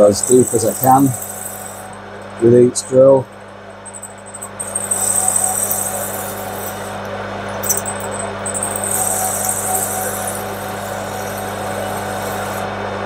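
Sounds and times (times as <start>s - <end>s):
drill cutting hiss: 0.0s - 2.0s, 4.6s - 7.0s, 7.6s - 12.7s
lathe motor running: 0.0s - 13.0s.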